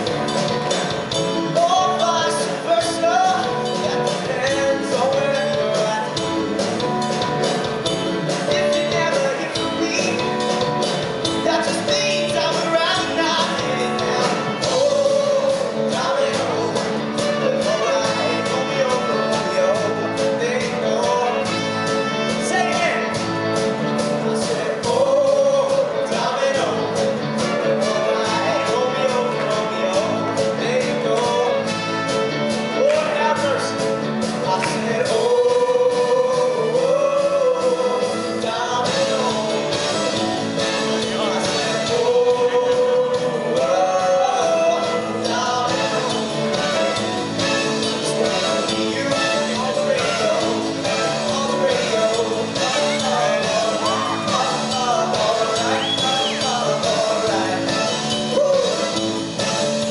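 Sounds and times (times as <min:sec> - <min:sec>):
live rock band playing: 0:00.0 - 0:59.9
man singing lead: 0:00.0 - 0:59.9
backing choir singing: 0:34.7 - 0:59.9.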